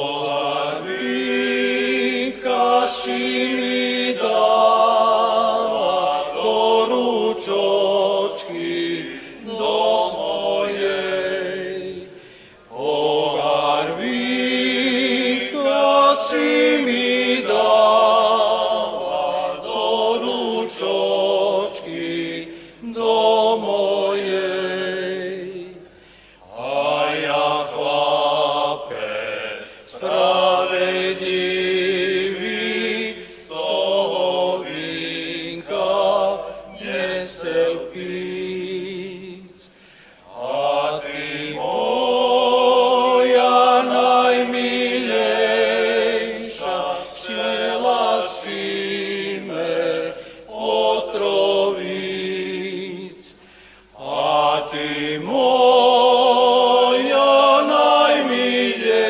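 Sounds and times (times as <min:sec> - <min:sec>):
men singing a cappella: 0:00.0 - 0:59.0.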